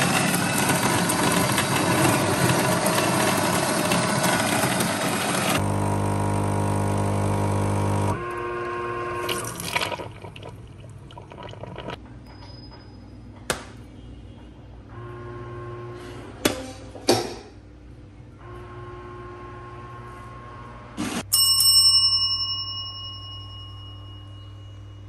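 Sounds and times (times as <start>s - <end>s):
water sloshing: 9.2s - 12.0s.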